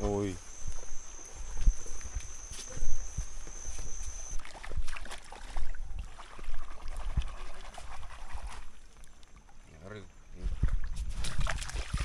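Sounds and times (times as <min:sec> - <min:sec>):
thin high tone: 0:00.0 - 0:04.4
footsteps on sandy path: 0:00.0 - 0:05.8.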